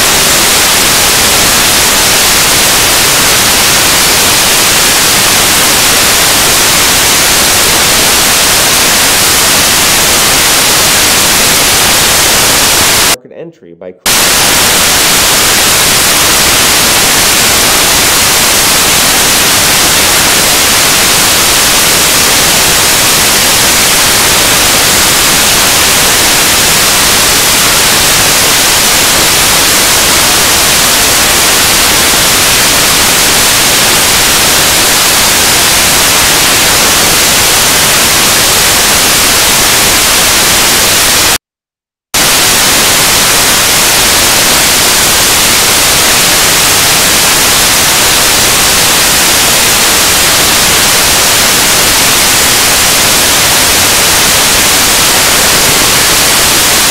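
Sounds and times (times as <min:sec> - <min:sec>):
static hiss: 0:00.0 - 0:13.2, 0:14.1 - 0:41.4, 0:42.2 - 0:56.9.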